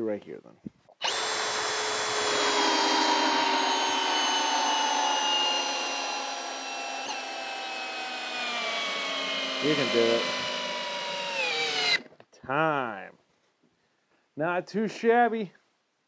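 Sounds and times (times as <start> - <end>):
cordless drill motor whining: 1.0 - 12.1.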